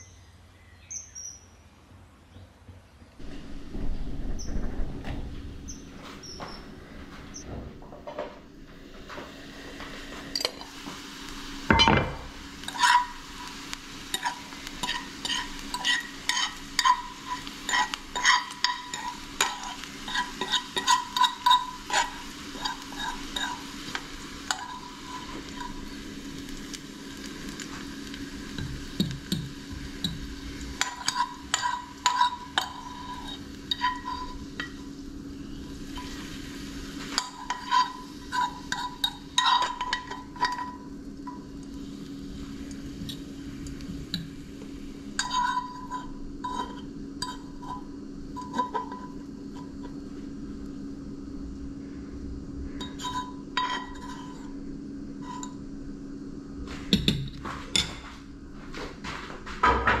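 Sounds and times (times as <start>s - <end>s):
steady low hum: 0.0s - 60.0s
fork clinking on a pan and plate: 14.2s - 23.6s, 30.8s - 34.8s, 37.2s - 41.4s.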